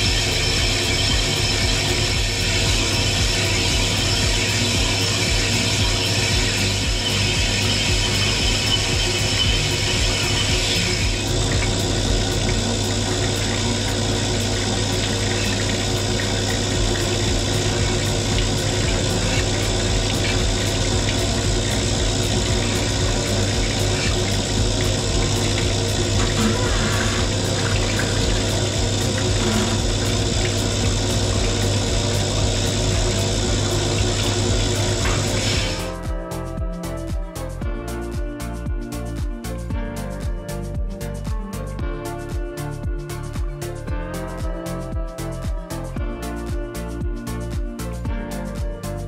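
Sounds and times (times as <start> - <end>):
coolant pouring and splashing: 0.0 - 36.0
liquid rushing through hose: 0.0 - 36.0
pump humming: 0.0 - 49.0.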